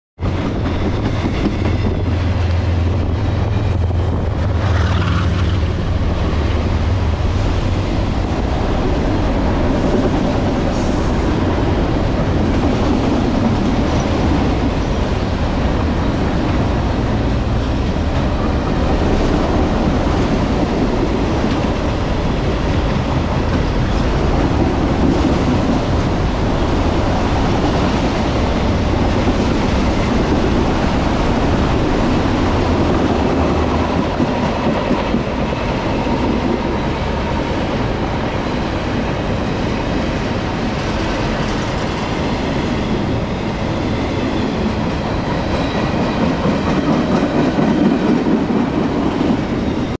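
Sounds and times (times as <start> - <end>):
freight train rolling on steel wheels: 0.2 - 50.0
train passing on next track: 0.2 - 50.0.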